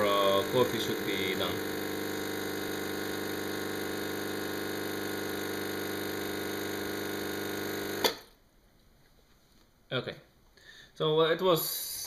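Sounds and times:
espresso machine pump humming: 0:00.0 - 0:08.3.

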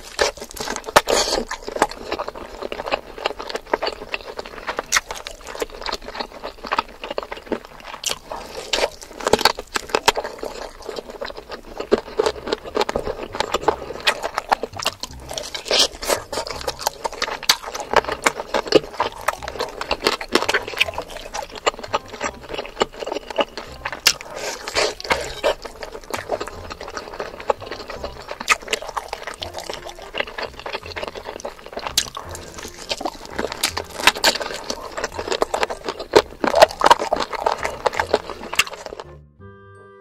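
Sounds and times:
wet chewing and lip-smacking: 0:00.0 - 0:39.1.

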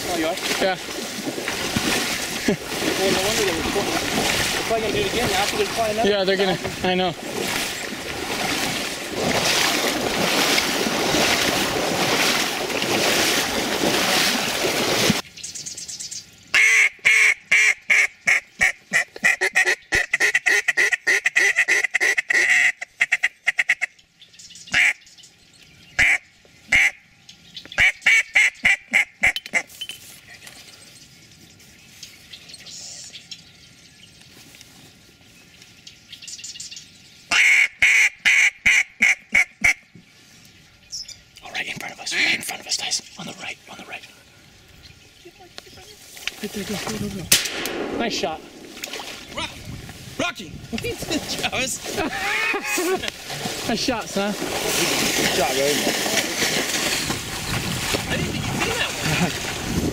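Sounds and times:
wading through water and reeds: 0:00.0 - 0:20.9, 0:24.0 - 0:59.9
duck call quacks: 0:16.5 - 0:23.9, 0:24.7 - 0:25.0, 0:26.0 - 0:27.0, 0:27.8 - 0:29.6, 0:37.3 - 0:39.8.

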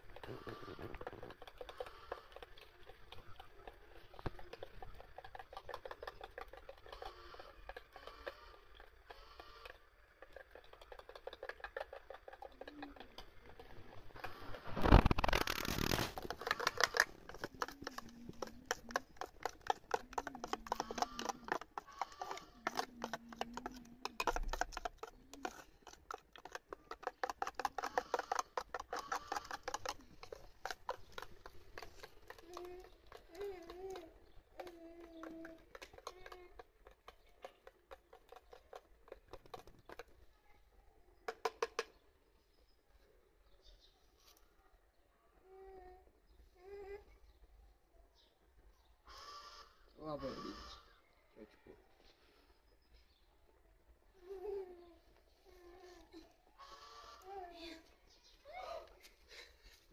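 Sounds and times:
metal spoon beating batter in bowl: 0:00.0 - 0:40.2.

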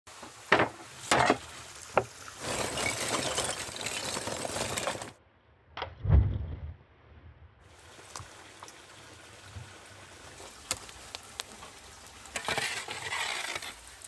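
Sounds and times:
charcoal clattering in grill: 0:00.2 - 0:05.2, 0:10.5 - 0:14.0.

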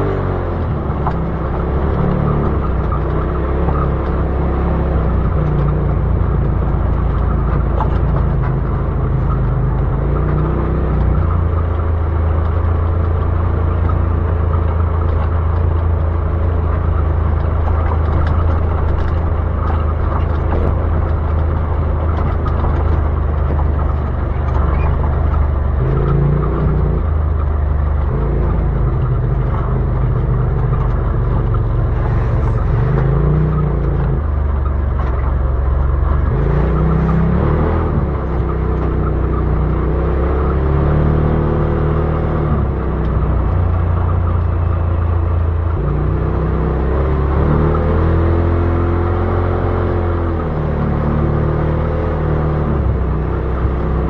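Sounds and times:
off-road vehicle engine droning: 0:00.0 - 0:54.0.

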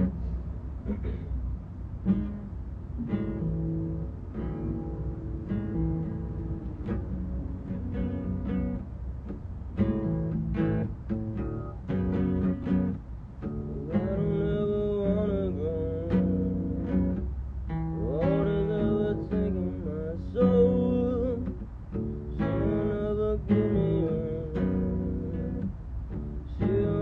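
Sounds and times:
acoustic guitar chords: 0:00.0 - 0:27.0
person singing: 0:13.7 - 0:17.0, 0:18.0 - 0:21.6, 0:26.4 - 0:27.0.

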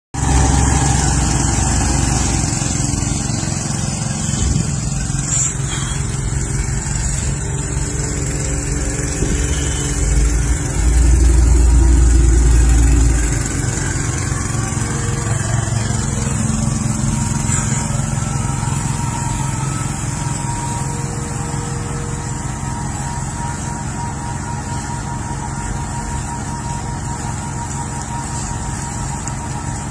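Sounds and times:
deep low rumble: 0:00.2 - 0:20.7
car engine running: 0:00.2 - 0:29.9
road noise: 0:00.2 - 0:29.9.

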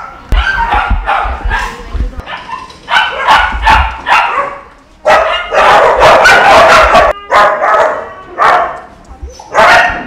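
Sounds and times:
dogs barking: 0:00.0 - 0:10.0.

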